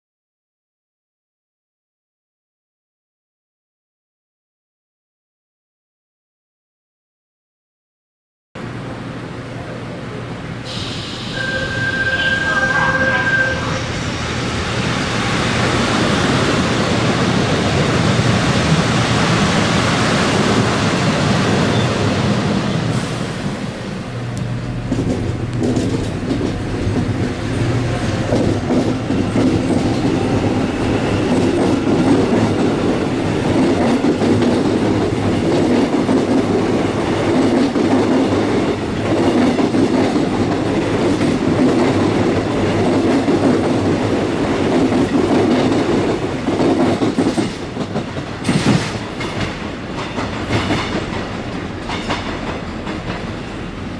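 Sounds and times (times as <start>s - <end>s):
train wheels clattering over rail joints: 24.6s - 53.6s.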